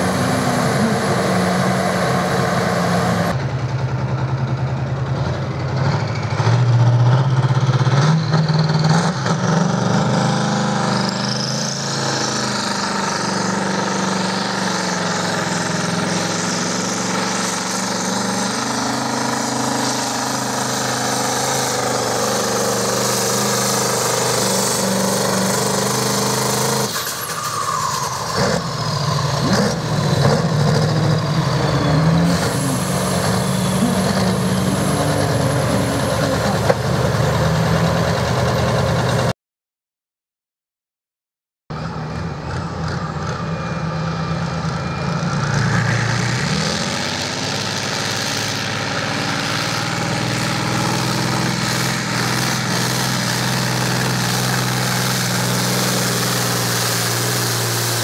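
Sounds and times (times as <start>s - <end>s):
big engine running steadily: 0.0s - 39.3s, 41.7s - 58.0s
thin high whistle: 31.8s - 36.0s.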